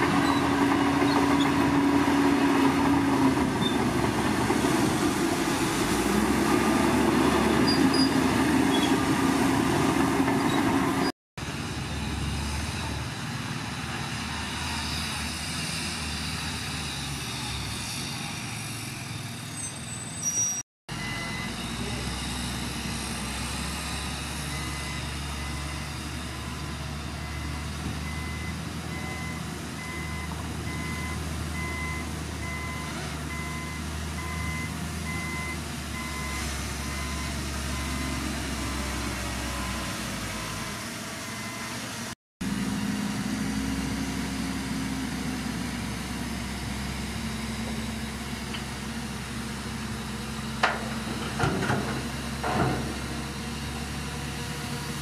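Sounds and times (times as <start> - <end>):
diesel machinery engine: 0.0 - 55.0
reversing alarm beeping: 20.9 - 22.4, 24.4 - 41.8.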